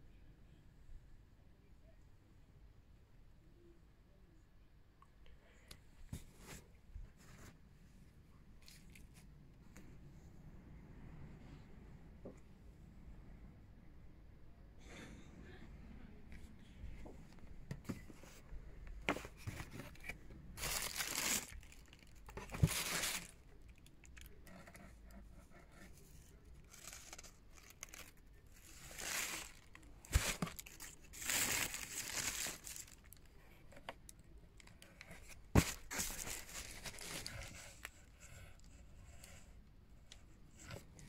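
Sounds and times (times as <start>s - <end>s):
plastic wrapping crinkling: 20.6s - 24.4s, 26.6s - 33.2s.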